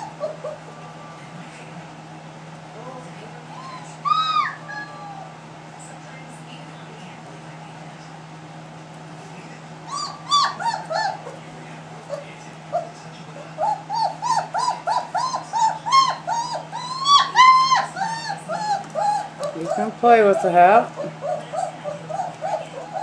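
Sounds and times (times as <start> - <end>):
puppy whimpering and yipping: 0.0 - 0.7, 3.5 - 5.3, 9.9 - 11.4, 13.6 - 23.0.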